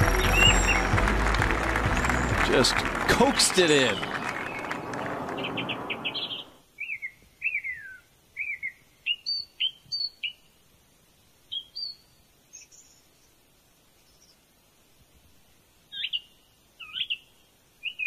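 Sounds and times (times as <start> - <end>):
rush of noise: 0.0 - 6.6
songbird chirping: 0.0 - 10.6, 11.4 - 14.6, 15.9 - 18.0.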